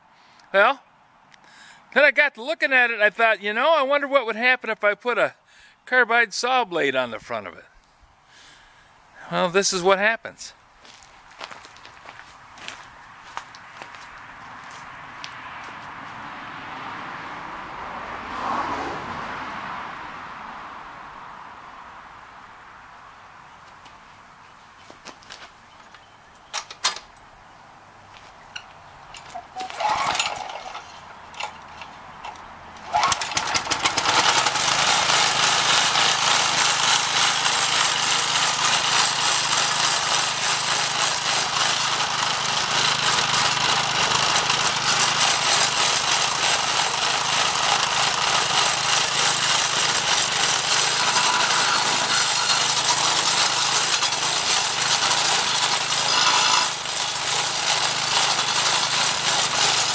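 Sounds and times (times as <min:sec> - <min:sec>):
saw blade grinding wood: 0:29.2 - 0:32.0, 0:32.8 - 0:59.9
engine pull-started: 0:29.6 - 0:31.9, 0:32.8 - 0:36.6, 0:49.2 - 0:59.9
edger engine running: 0:29.7 - 0:59.9.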